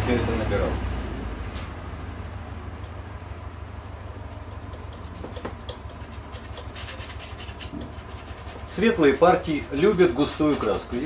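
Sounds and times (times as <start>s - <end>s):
low background hum: 0.0s - 11.0s
brush ticking on canvas: 4.2s - 11.0s.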